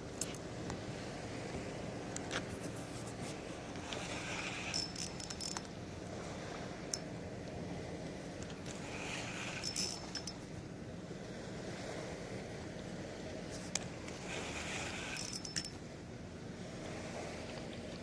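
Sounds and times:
water noise: 0:00.0 - 0:18.0
wind: 0:00.0 - 0:18.0
fishing reel clicks and whirrs: 0:03.7 - 0:07.2, 0:08.4 - 0:10.6, 0:13.6 - 0:15.9.

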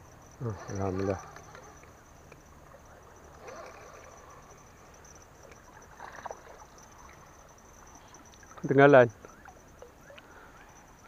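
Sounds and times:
high insect drone: 0:00.0 - 0:11.0.

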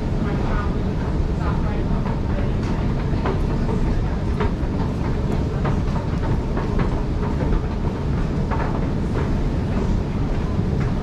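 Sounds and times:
steady low rumble: 0:00.0 - 0:11.0
sharp clicks and clacks: 0:02.0 - 0:09.8.

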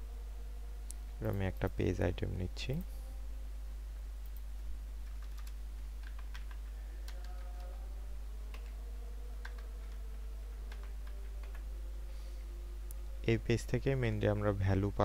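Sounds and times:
low electrical hum: 0:00.0 - 0:15.0
computer keyboard typing: 0:05.0 - 0:07.8, 0:08.5 - 0:08.8, 0:09.4 - 0:11.6.

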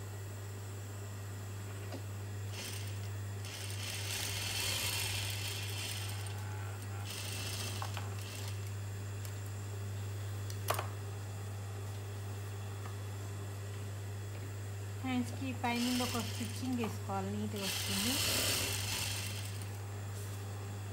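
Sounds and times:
steady low hum: 0:00.0 - 0:20.9
sewing machine stitching: 0:02.6 - 0:06.3, 0:07.1 - 0:08.6, 0:15.8 - 0:16.9, 0:17.6 - 0:19.7.

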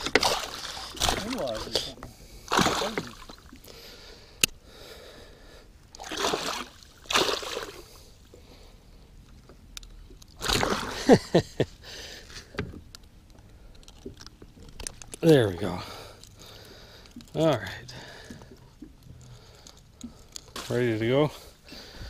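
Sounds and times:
fish splashing in a net: 0:00.0 - 0:01.6, 0:02.5 - 0:03.5, 0:06.0 - 0:07.8, 0:10.4 - 0:11.0.

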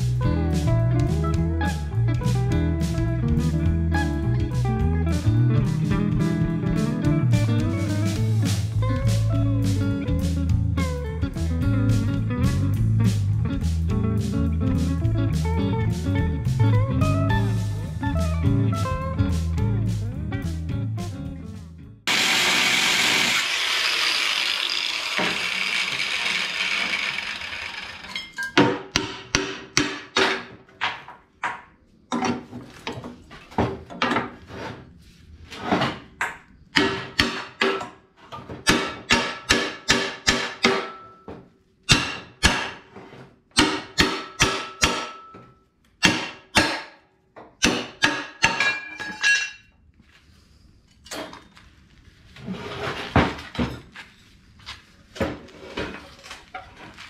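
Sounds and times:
hammer striking steel: 0:28.1 - 0:30.5, 0:36.8 - 0:38.0, 0:38.6 - 0:41.3, 0:41.9 - 0:42.9, 0:43.6 - 0:47.0, 0:47.6 - 0:49.6.

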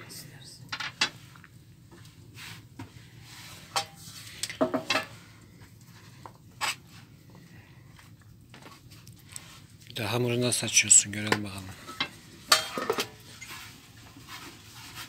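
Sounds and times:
dishes knocking and clinking: 0:03.8 - 0:05.2, 0:11.3 - 0:13.2.

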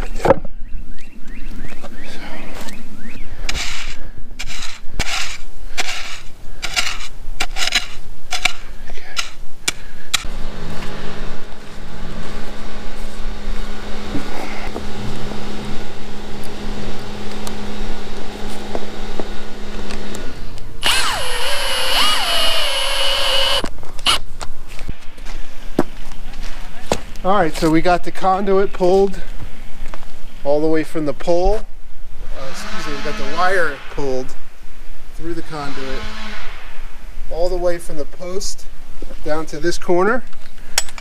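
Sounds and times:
spade scraping and chopping soil: 0:03.5 - 0:08.6
cordless drill whirring: 0:20.8 - 0:24.2.

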